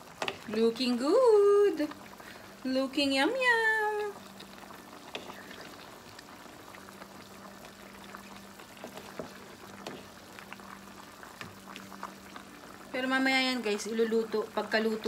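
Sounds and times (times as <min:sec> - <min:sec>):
stew bubbling in a pot: 0:00.0 - 0:15.0
wooden spoon stirring: 0:05.0 - 0:06.0, 0:07.3 - 0:12.3.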